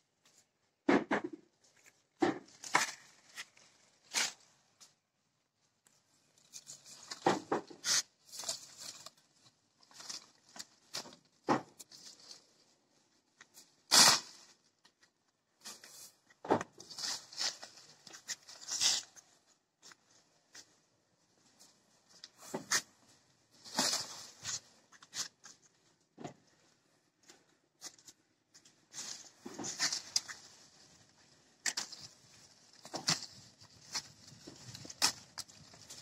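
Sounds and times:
leafy branches rustling: 0:16.8 - 0:19.2, 0:23.5 - 0:25.4, 0:28.9 - 0:36.0.

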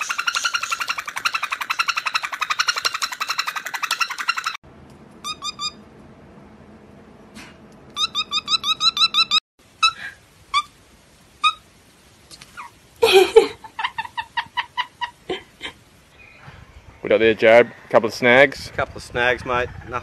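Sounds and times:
parrot rough squawk: 0:00.0 - 0:04.6
parrot squeaky chirps: 0:00.0 - 0:04.6, 0:05.2 - 0:05.8, 0:08.0 - 0:10.7, 0:11.4 - 0:11.6
parrot whistled chirps: 0:00.0 - 0:04.6, 0:08.0 - 0:10.7.

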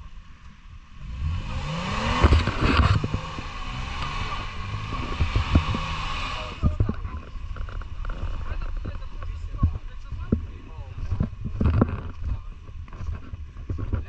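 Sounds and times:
off-road engine revving: 0:00.7 - 0:14.0
tyres rushing through mud: 0:01.1 - 0:11.0
vehicle thumping through ruts: 0:01.3 - 0:14.0.

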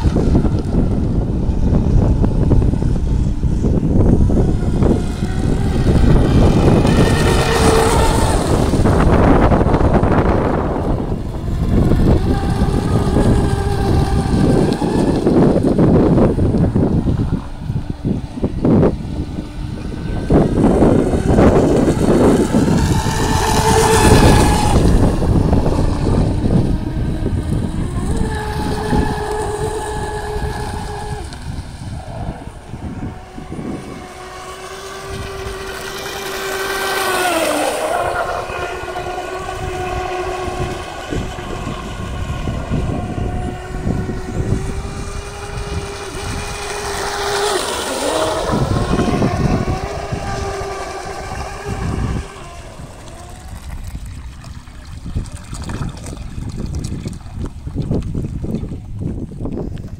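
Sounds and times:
electric motor high-pitched whine: 0:00.0 - 0:54.2.

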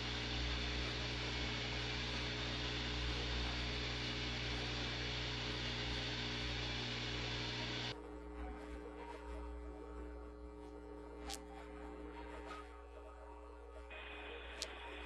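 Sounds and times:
cnc router milling: 0:00.0 - 0:07.9.

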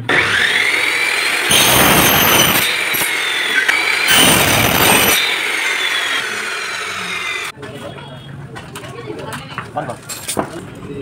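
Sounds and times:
saw motor whining: 0:00.0 - 0:07.5
saw screeching through metal: 0:00.0 - 0:07.5.

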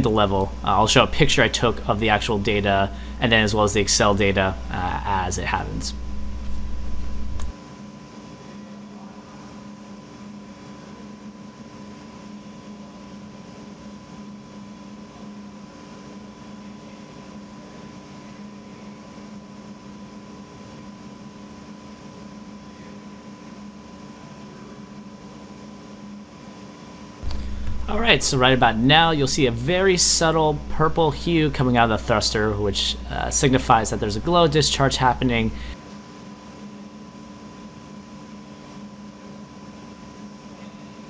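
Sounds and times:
machine hum with high whine: 0:00.0 - 0:41.0
loud low rumble: 0:27.2 - 0:31.6.

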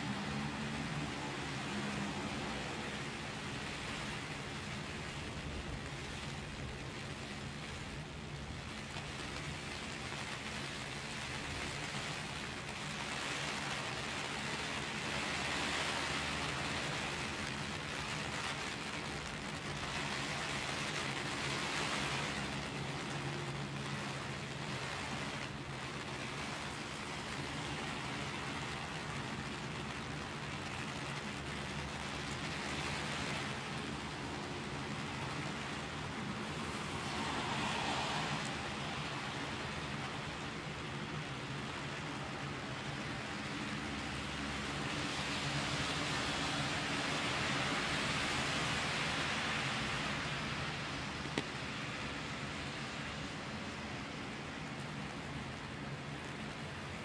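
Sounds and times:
heavy rain on an umbrella: 0:00.0 - 0:57.0.

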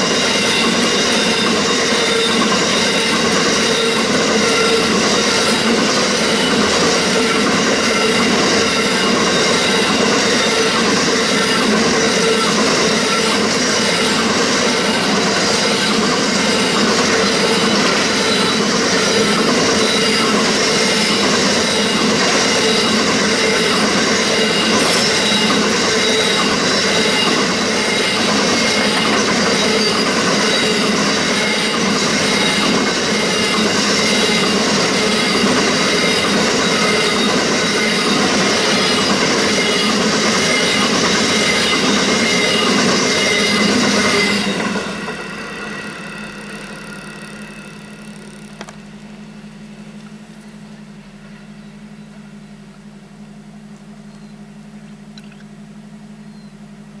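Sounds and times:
clickety-clack of wheels: 0:00.0 - 0:45.2
wheel squeal: 0:00.0 - 0:48.8
train wagons rolling past: 0:00.0 - 0:49.0.

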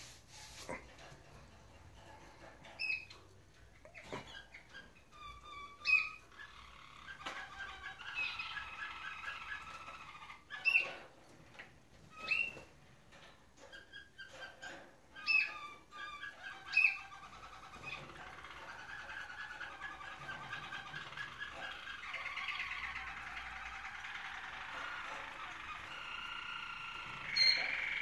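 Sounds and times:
canary rolling trill: 0:00.5 - 0:28.0.

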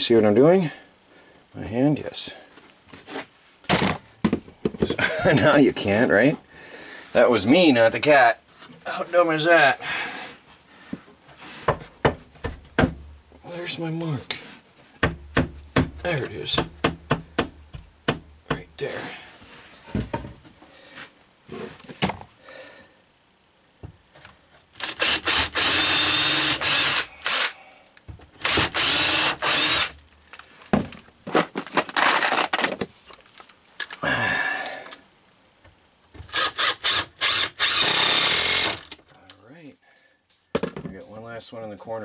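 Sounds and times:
cordless drill driving screws: 0:24.8 - 0:27.6, 0:28.4 - 0:30.0, 0:36.3 - 0:39.0.

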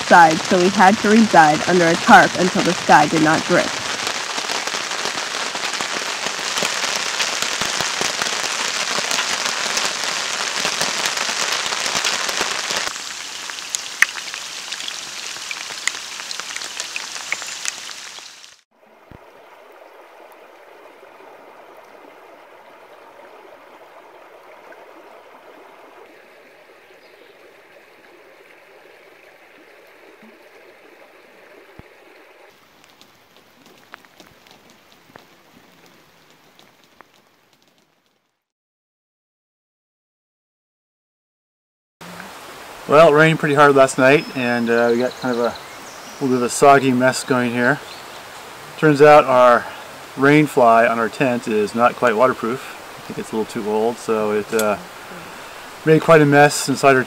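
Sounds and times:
heavy rain falling: 0:00.0 - 0:18.6, 0:32.0 - 0:38.0, 0:42.0 - 0:57.0.

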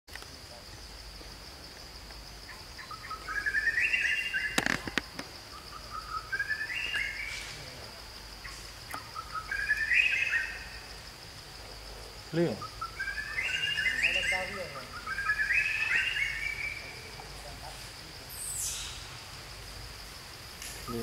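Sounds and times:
bird whistling rising notes: 0:02.8 - 0:04.6, 0:05.5 - 0:07.4, 0:09.0 - 0:10.7, 0:12.6 - 0:17.0.

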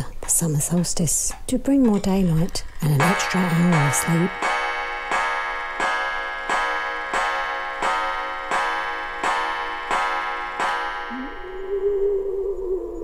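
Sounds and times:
mechanical clock ticking: 0:00.6 - 0:04.7.

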